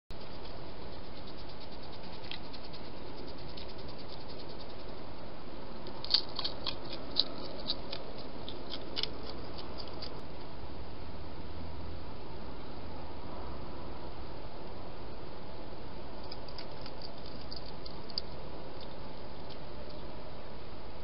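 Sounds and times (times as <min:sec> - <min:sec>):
hedgehog clicks and scratches: 0:00.2 - 0:05.0, 0:05.8 - 0:10.2, 0:16.2 - 0:20.0.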